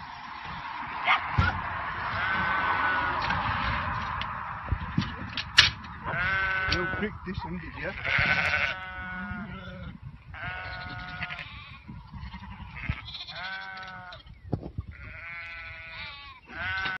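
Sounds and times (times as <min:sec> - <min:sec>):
lambs bleating: 0:01.4 - 0:03.1, 0:06.0 - 0:14.3, 0:14.9 - 0:17.0.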